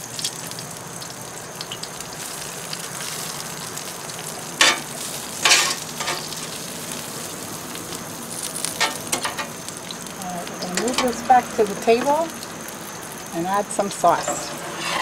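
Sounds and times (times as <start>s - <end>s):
food sizzling on griddle: 0.0s - 15.0s
metal tongs scraping griddle: 4.6s - 6.4s, 14.0s - 15.0s.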